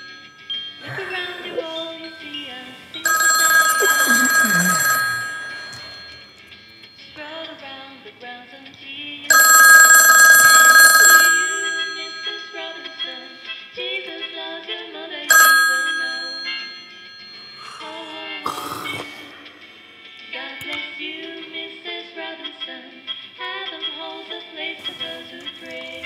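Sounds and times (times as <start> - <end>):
telephone ringing: 0.0 - 7.4, 9.3 - 13.7, 15.3 - 19.6
soft music: 0.0 - 26.0.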